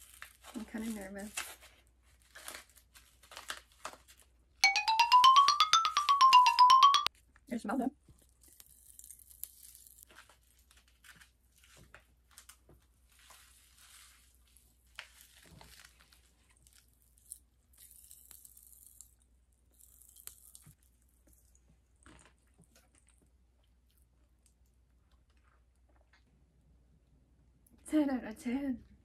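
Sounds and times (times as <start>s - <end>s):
popping candy crackling: 8.2s - 11.2s, 14.3s - 23.3s.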